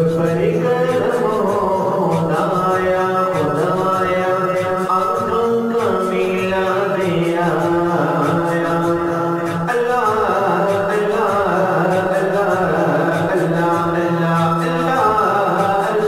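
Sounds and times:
wordless voice singing long notes: 0.0 - 16.0.

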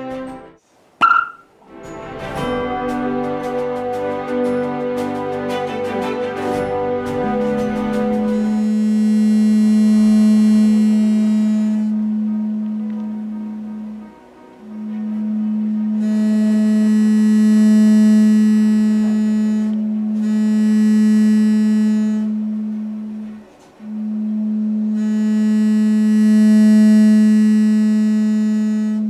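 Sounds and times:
low electronic tone from loudspeaker: 8.3 - 29.0.

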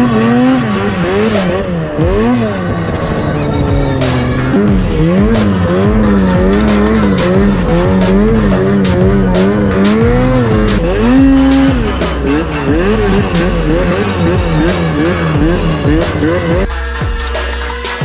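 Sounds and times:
music with steady beat: 0.0 - 18.0
snowmobile engine revving: 0.0 - 18.0.

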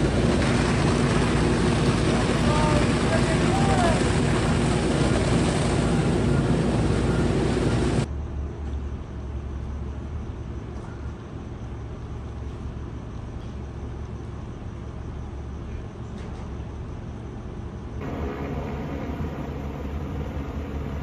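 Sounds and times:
engine drone: 0.0 - 8.1, 18.0 - 21.0
low rumble: 18.0 - 21.0
water stream rushing: 18.0 - 21.0.

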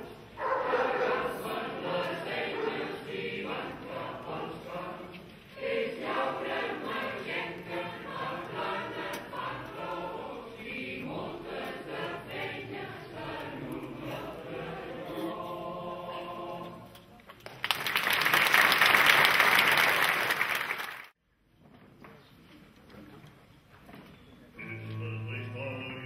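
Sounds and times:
mixed choir singing: 0.0 - 17.0.

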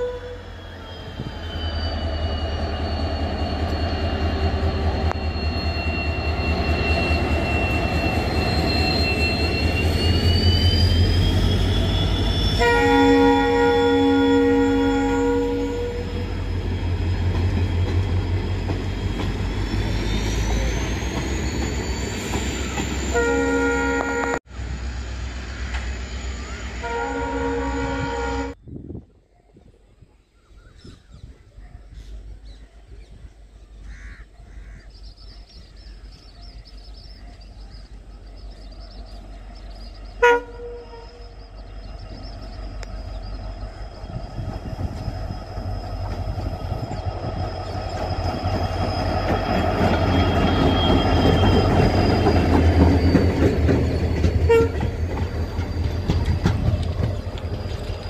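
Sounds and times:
train horn: 0.0 - 2.4, 11.4 - 16.4, 23.0 - 24.5, 26.4 - 28.6, 40.1 - 41.5, 54.5 - 54.9
diesel train engine rumbling: 0.0 - 58.0.

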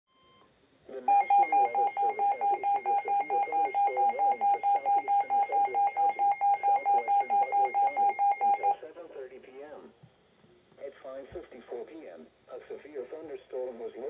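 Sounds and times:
rapid alarm beeping: 1.0 - 8.8.

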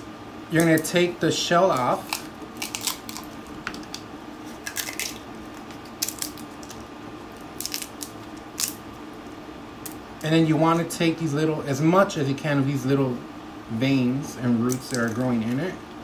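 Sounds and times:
dry pod shells cracking: 1.7 - 8.9, 14.7 - 15.6.

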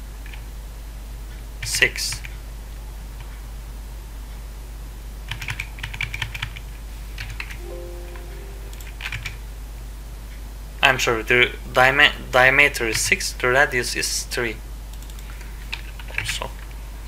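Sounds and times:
brief low tone: 7.6 - 9.4.

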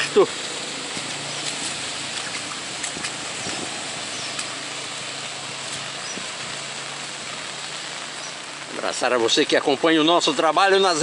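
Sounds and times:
rain on a wet street: 0.0 - 11.0.

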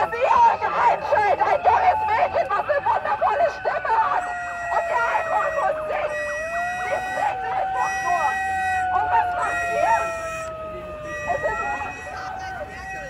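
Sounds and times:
people shouting: 0.0 - 10.3
siren-like wailing tone: 0.0 - 13.0.

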